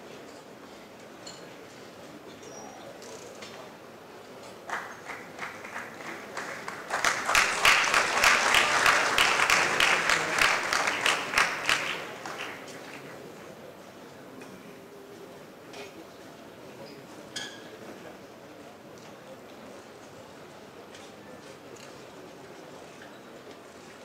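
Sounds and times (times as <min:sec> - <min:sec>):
audience applauding: 0:04.7 - 0:13.1.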